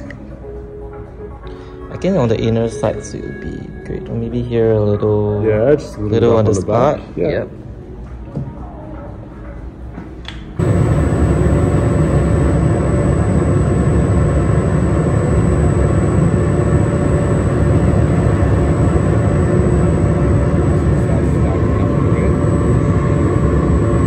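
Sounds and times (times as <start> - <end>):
buffing machine humming: 10.6 - 24.0.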